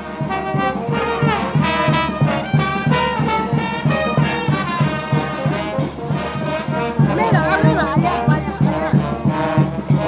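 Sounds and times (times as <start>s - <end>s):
brass band playing: 0.0s - 10.0s.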